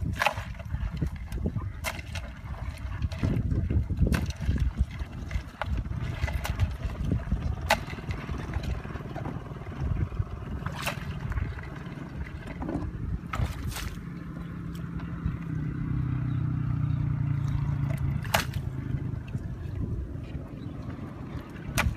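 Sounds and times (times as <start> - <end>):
crab shells clacking against bucket: 0.0 - 8.1
steady low rumble: 0.0 - 21.9.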